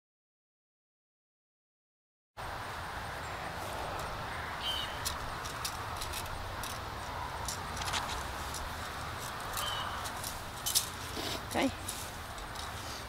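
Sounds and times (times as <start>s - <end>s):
metal rake scraping soil: 4.7s - 13.0s.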